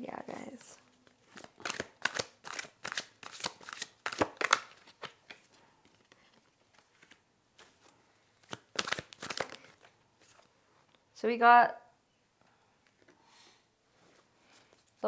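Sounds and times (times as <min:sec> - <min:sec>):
cards being shuffled: 0:00.3 - 0:10.5.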